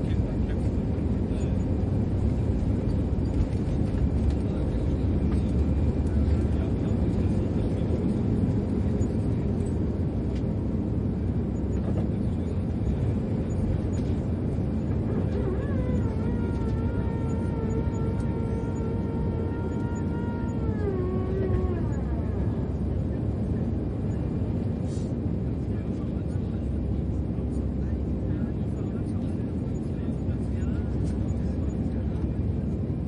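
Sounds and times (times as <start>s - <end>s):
jet engine cabin rumble: 0.0s - 33.0s
whine gliding down in pitch: 15.0s - 23.1s.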